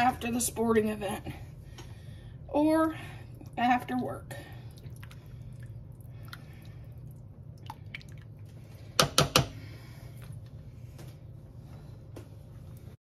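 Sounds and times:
spatula tapping on crock: 0:09.0 - 0:09.6.

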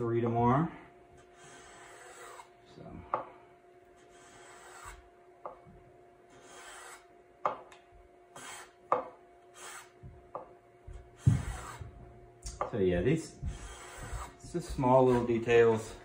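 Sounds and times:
hand plane scraping wood: 0:01.2 - 0:02.5, 0:04.0 - 0:05.0, 0:06.3 - 0:07.0, 0:08.4 - 0:08.8, 0:09.6 - 0:10.0, 0:11.2 - 0:11.9, 0:13.4 - 0:16.0.

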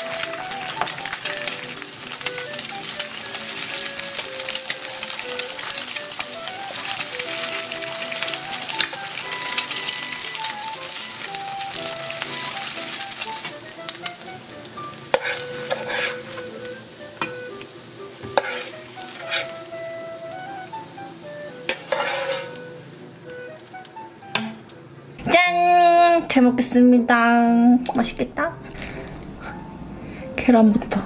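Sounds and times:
eggs sizzling in a pan: 0:00.0 - 0:25.1
background music: 0:00.0 - 0:26.6, 0:27.2 - 0:31.0
metal turner clicking on pan: 0:15.1 - 0:16.2, 0:21.7 - 0:22.6.

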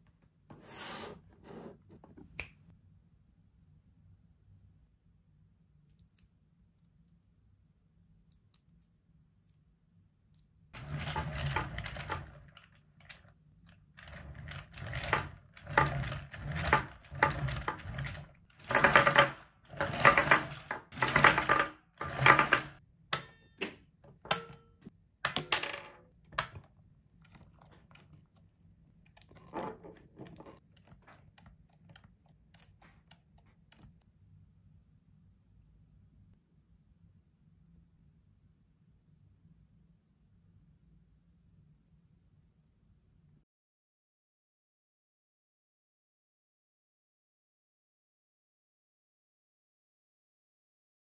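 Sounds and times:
plastic toy parts clattering: 0:10.8 - 0:22.8, 0:29.1 - 0:33.9.

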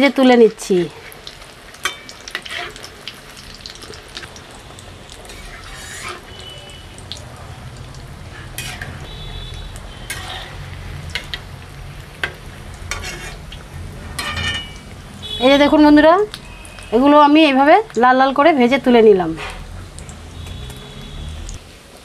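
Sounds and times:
fish deep-frying in oil: 0:00.0 - 0:22.0
utensil scraping a pan: 0:01.9 - 0:02.9, 0:05.3 - 0:06.4, 0:08.3 - 0:11.4, 0:12.2 - 0:14.9, 0:19.3 - 0:19.7.

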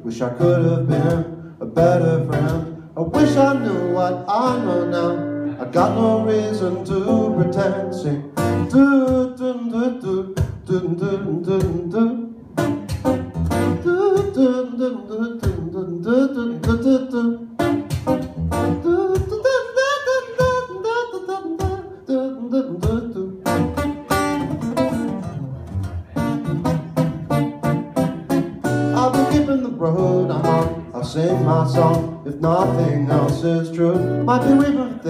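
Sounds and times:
man singing wordless melody: 0:00.0 - 0:12.4, 0:13.6 - 0:17.8, 0:18.7 - 0:23.8, 0:28.8 - 0:35.0
acoustic guitar strumming: 0:00.0 - 0:35.0.

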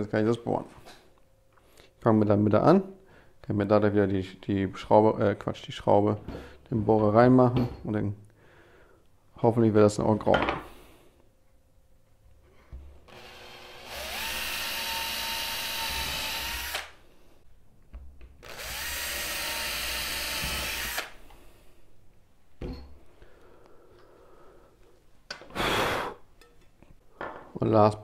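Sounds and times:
cordless drill boring wood: 0:13.1 - 0:17.0, 0:18.4 - 0:21.2.

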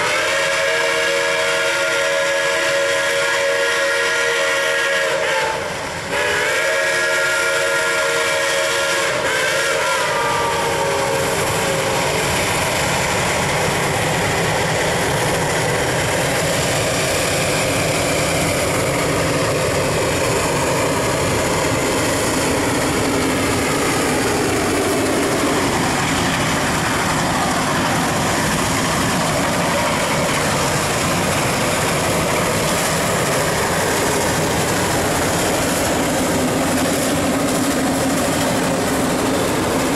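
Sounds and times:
steam whistle blowing: 0:00.0 - 0:11.4
steam locomotive exhaust: 0:00.0 - 0:39.9.

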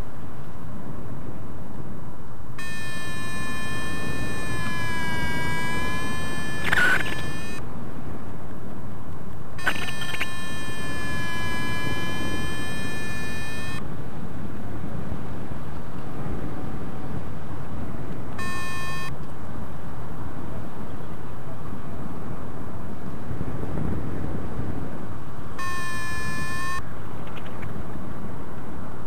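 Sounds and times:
wind rushing over microphone: 0:00.0 - 0:29.0
variometer electronic tones: 0:02.6 - 0:07.6, 0:09.6 - 0:13.8, 0:18.4 - 0:19.2, 0:25.6 - 0:26.9.

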